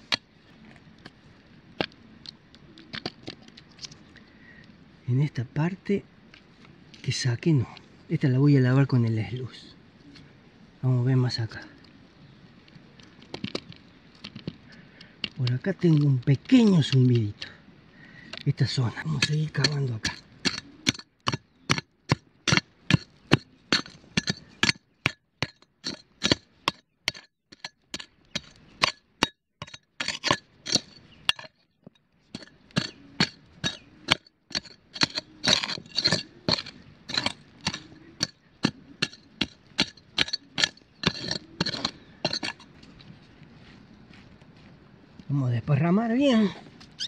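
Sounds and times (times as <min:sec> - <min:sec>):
metal tool striking gravelly ground: 0:18.3 - 0:42.7.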